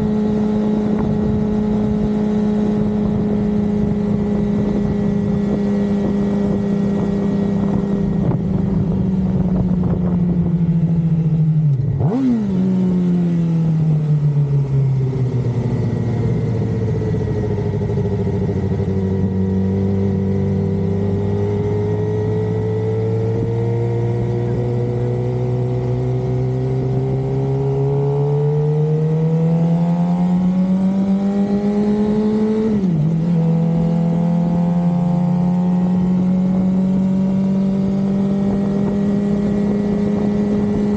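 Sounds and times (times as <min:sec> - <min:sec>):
motorcycle engine revving: 0:00.0 - 0:40.9
wind rush: 0:00.7 - 0:11.0.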